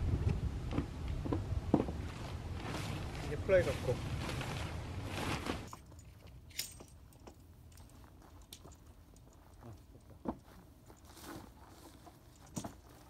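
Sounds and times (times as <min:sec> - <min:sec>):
tent fabric rustling: 0:01.8 - 0:05.8, 0:07.9 - 0:13.0
tent poles clicking: 0:02.6 - 0:13.0.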